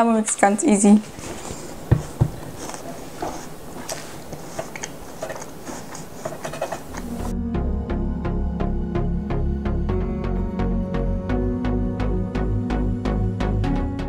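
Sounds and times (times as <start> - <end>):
steel mixing bowl knocking and scraping: 1.3 - 7.3
background music: 2.6 - 14.0.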